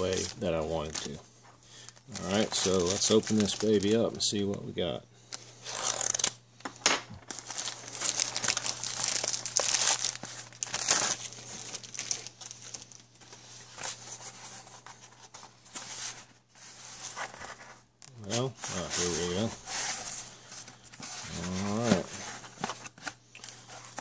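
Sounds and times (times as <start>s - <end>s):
plastic bag crinkling and tearing: 0.0s - 1.2s, 1.8s - 4.2s, 5.3s - 6.4s, 7.2s - 13.3s
paper package rustling: 0.0s - 4.5s, 7.2s - 24.0s.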